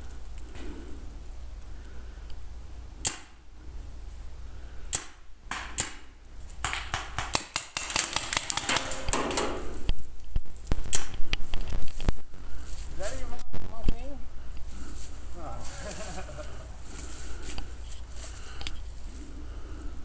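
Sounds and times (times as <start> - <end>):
paintball markers firing: 4.9 - 9.7.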